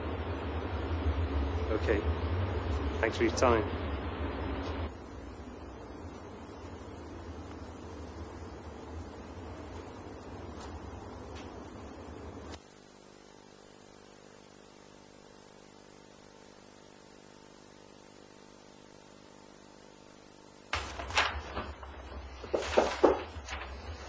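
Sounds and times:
faint electrical hum: 0.0s - 24.0s
sharp knocks: 20.7s - 23.6s.

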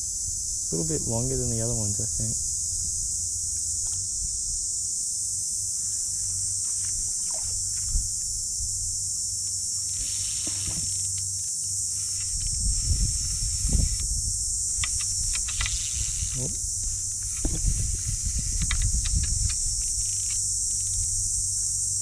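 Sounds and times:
low gusting rumble: 0.0s - 4.9s, 7.9s - 9.0s, 12.3s - 21.4s
insect chorus: 0.0s - 22.0s.

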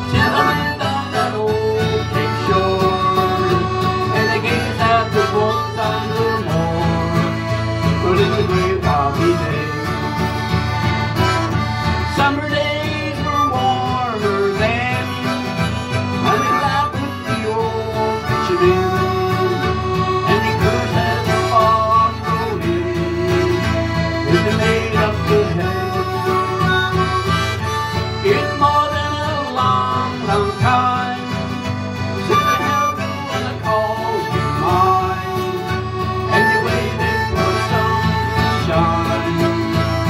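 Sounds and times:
button accordion: 0.0s - 40.0s
harmonica: 0.0s - 40.0s
strummed acoustic guitar: 0.0s - 40.0s.

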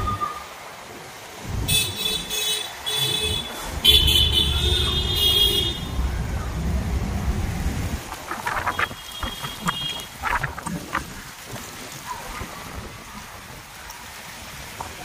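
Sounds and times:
vehicle horns honking: 1.6s - 6.1s, 8.6s - 10.2s.

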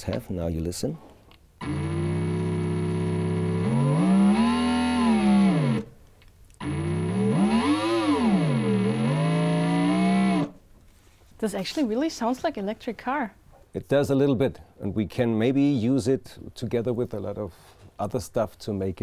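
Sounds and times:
electric drone through guitar amp: 1.6s - 5.9s, 6.6s - 10.6s.

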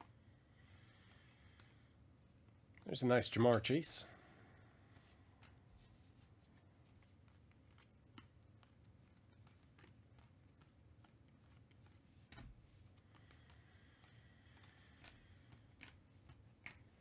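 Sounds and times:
trading cards clicking and rustling: 6.5s - 17.0s.

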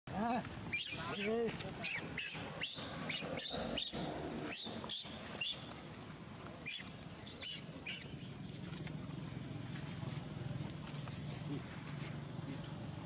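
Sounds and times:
baby monkey squeaking: 0.7s - 5.6s, 6.6s - 8.1s.

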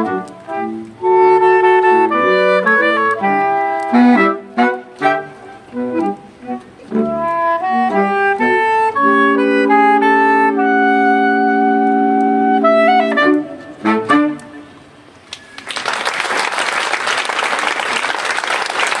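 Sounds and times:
saxophone quartet playing: 0.0s - 15.1s
audience applauding: 15.3s - 19.0s.

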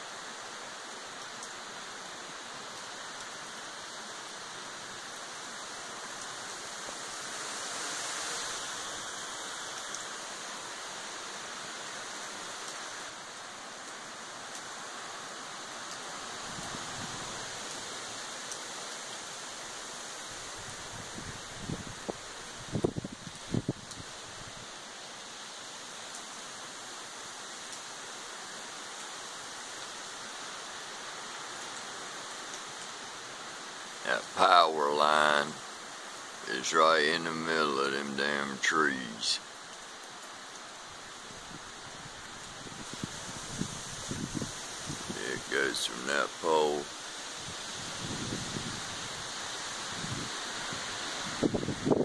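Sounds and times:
steady rain on trees and grass: 0.0s - 52.0s
faint ticks: 0.8s - 1.6s, 9.7s - 10.2s.

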